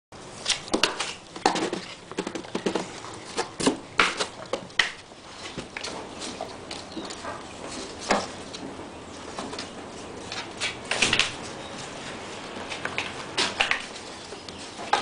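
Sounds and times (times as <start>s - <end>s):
kitten claws scratching cardboard: 0.5s - 8.5s.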